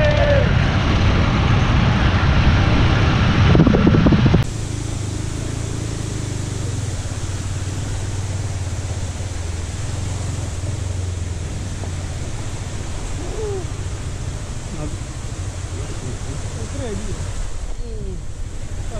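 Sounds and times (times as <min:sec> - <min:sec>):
motorcycle engine drone: 0:00.0 - 0:18.9
wind and road noise: 0:00.0 - 0:18.9.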